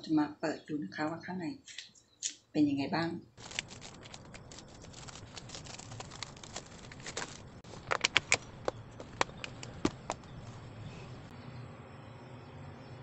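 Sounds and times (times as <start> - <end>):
plastic lid crinkling and clicking: 3.4 - 10.3
plastic lid snapping: 7.8 - 10.2.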